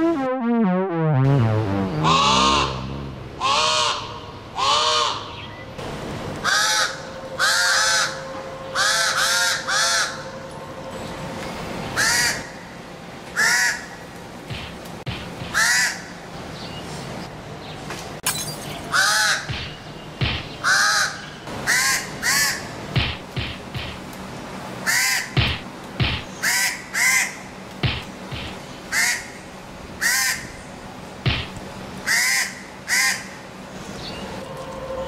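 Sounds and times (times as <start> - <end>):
crows cawing: 3.4 - 5.3, 6.4 - 8.2, 8.8 - 10.3, 15.5 - 16.1, 20.4 - 22.8.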